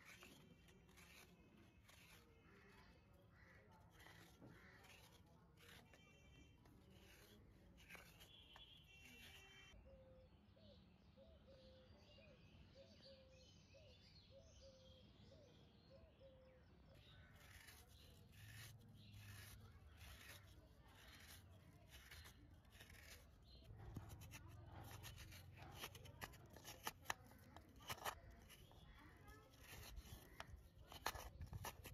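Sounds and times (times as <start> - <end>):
hand scraper grating coconut: 0.0 - 9.8, 17.2 - 31.9.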